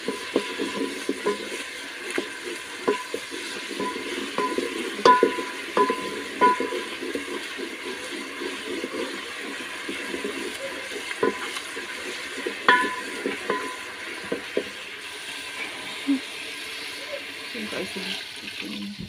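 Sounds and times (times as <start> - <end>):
pot ringing: 0.0 - 7.8, 10.1 - 14.6
wooden spoon knocking a pot: 0.0 - 14.8
food bubbling and sizzling in a pot: 0.0 - 19.0.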